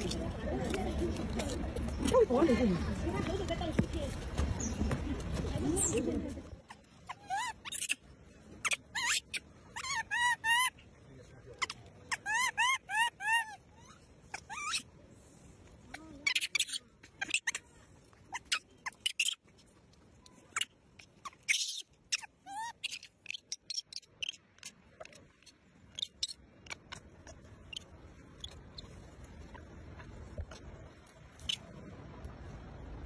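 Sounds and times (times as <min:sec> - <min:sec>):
baby monkey squeaking chirps: 0:06.7 - 0:08.0, 0:08.6 - 0:10.8, 0:11.6 - 0:14.9, 0:16.0 - 0:17.6, 0:18.3 - 0:19.4, 0:20.4 - 0:28.9.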